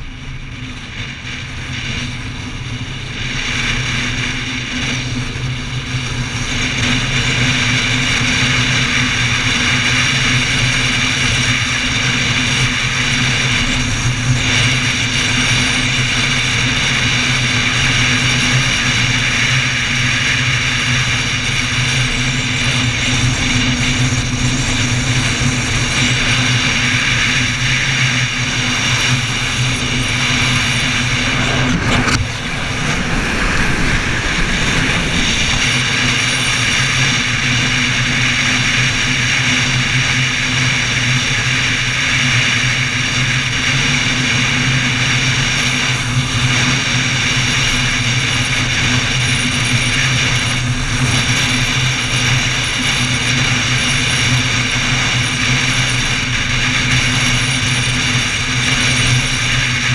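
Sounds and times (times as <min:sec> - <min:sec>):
motorcycle engine cruising: 0:11.3 - 0:40.2.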